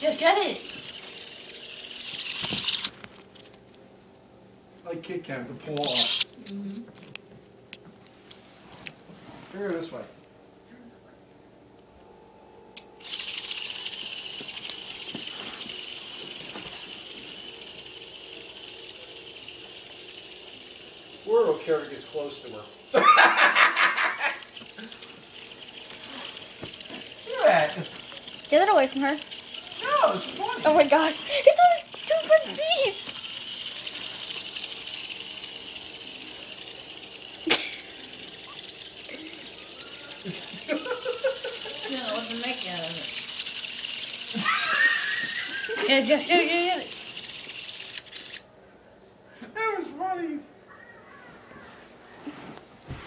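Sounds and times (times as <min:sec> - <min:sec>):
vibrating toy buzzing and rattling: 0:00.0 - 0:03.8, 0:05.7 - 0:07.1, 0:12.8 - 0:48.5.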